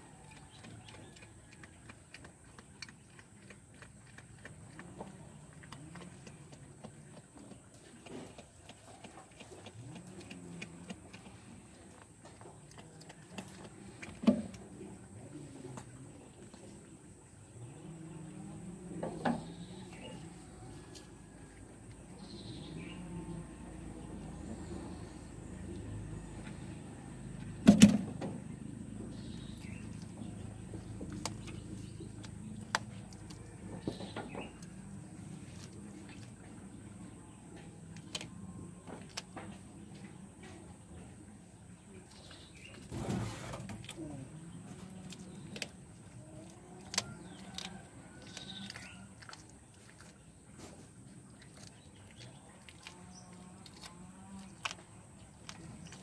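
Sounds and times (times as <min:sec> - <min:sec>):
animal chewing and crunching: 0:00.0 - 0:56.0.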